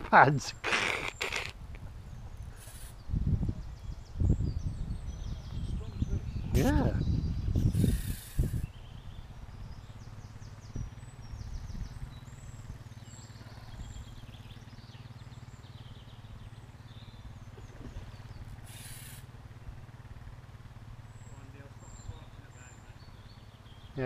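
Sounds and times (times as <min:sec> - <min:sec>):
steady low rumble: 0:00.0 - 0:14.8
birds chirping: 0:00.0 - 0:24.0
brief hiss: 0:02.5 - 0:03.0, 0:18.6 - 0:19.3.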